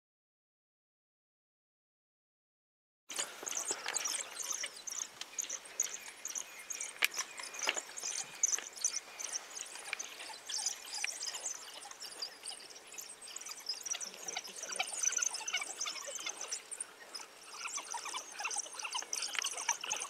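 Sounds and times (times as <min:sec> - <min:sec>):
steady high chirping: 0:03.1 - 0:20.0.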